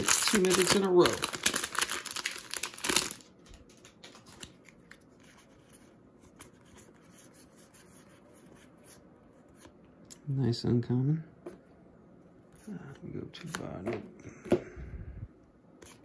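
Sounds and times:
foil wrapper tearing and crinkling: 0:00.0 - 0:04.6
playing cards being handled: 0:02.6 - 0:09.8.

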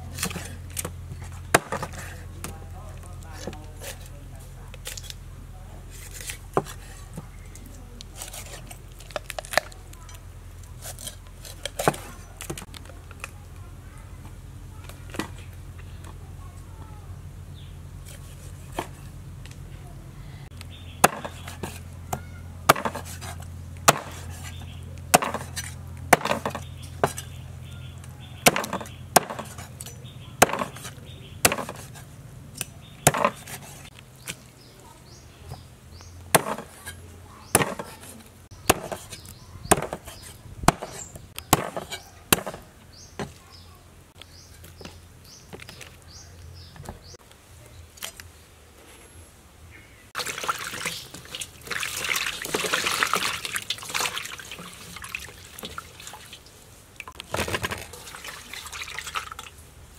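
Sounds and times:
cleaver chopping on wooden block: 0:01.5 - 0:02.0, 0:21.0 - 0:27.4, 0:28.4 - 0:29.7, 0:30.4 - 0:32.0, 0:32.9 - 0:34.4, 0:36.3 - 0:43.4.

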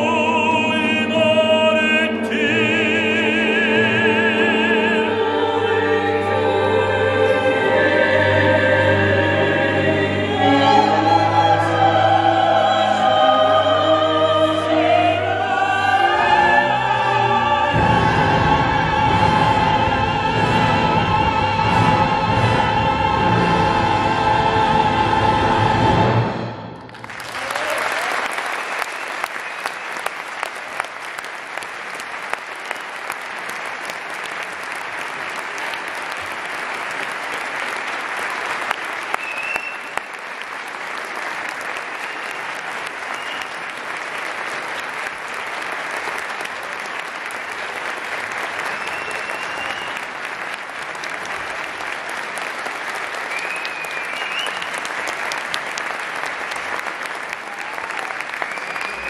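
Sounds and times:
audience applauding: 0:26.8 - 0:59.0.

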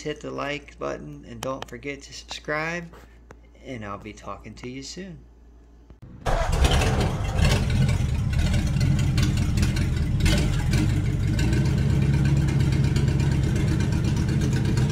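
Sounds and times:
car engine starting and revving: 0:06.0 - 0:14.9.

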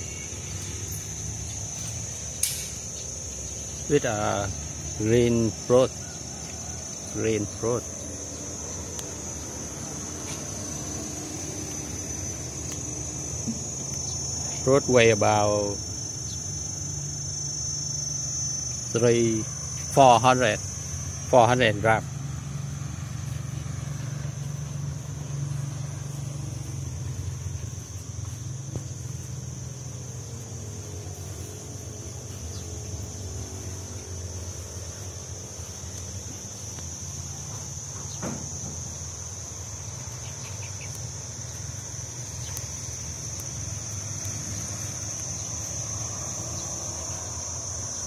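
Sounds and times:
distant traffic rumble: 0:00.0 - 0:17.2, 0:18.7 - 0:48.0
high-pitched insect chorus: 0:00.0 - 0:48.0.

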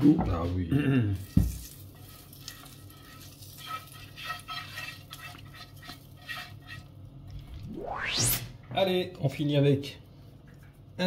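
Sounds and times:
faint sizzling: 0:00.5 - 0:07.7
scraping in pans: 0:01.2 - 0:07.0.

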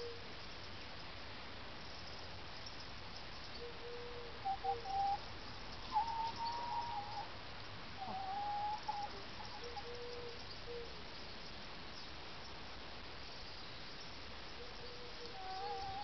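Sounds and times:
hens calling in whining notes: 0:05.8 - 0:07.4, 0:08.0 - 0:10.4, 0:15.0 - 0:16.0.

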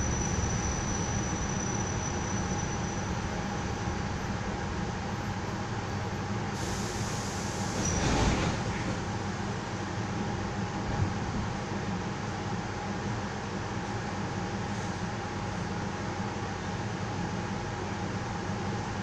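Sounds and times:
train carriage rumble: 0:00.0 - 0:19.0
air brakes hissing: 0:06.5 - 0:08.9.

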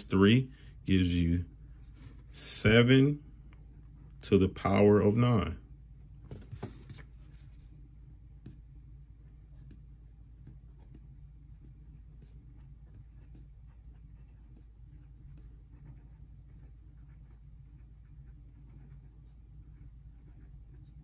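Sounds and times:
steady low hum: 0:00.0 - 0:21.0
paper rustle: 0:06.3 - 0:07.7
marker scratching on paper: 0:09.5 - 0:21.0.

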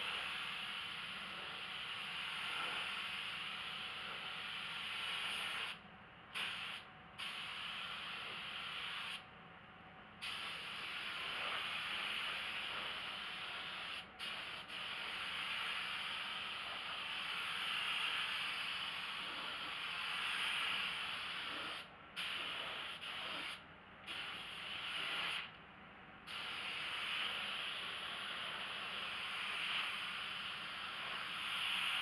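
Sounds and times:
spray gun hissing: 0:26.3 - 0:32.0.

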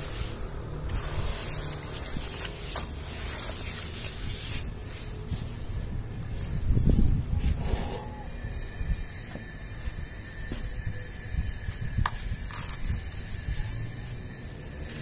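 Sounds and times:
hand kneading wet sand: 0:00.0 - 0:08.0.

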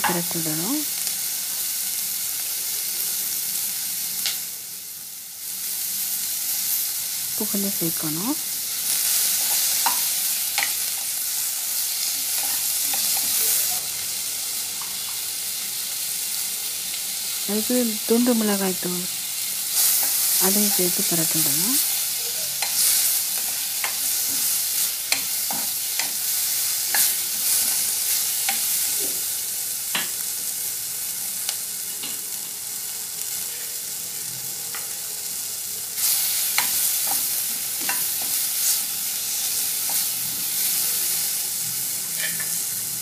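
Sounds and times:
masala sizzling in oil: 0:00.0 - 0:43.0.

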